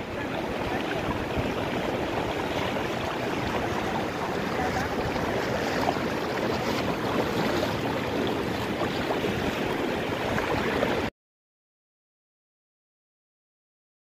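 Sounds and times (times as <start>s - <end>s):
floodwater rushing: 0.0s - 11.1s.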